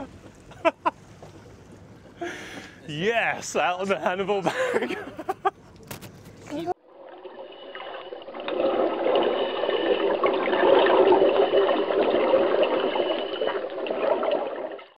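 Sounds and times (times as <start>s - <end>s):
rushing bubbling water: 6.8s - 15.0s.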